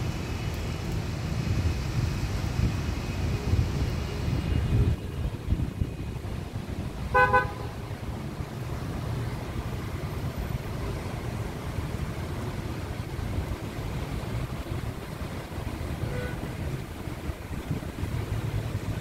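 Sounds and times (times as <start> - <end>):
low traffic rumble: 0.0 - 19.0
car horn toot: 7.1 - 7.8, 16.0 - 16.5.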